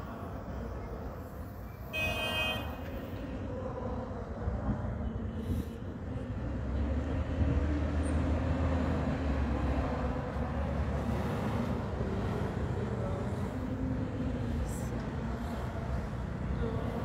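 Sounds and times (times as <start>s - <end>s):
vehicle engines rumbling: 0.0s - 17.0s.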